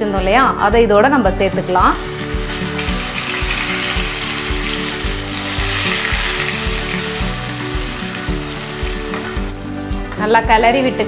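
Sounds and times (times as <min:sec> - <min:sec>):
soft background music with beat: 0:00.0 - 0:11.0
paste sizzling in hot oil: 0:01.5 - 0:09.6.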